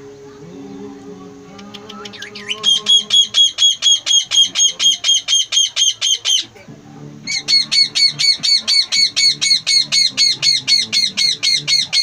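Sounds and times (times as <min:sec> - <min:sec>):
parakeet squawking: 0:02.0 - 0:06.6, 0:07.3 - 0:12.0.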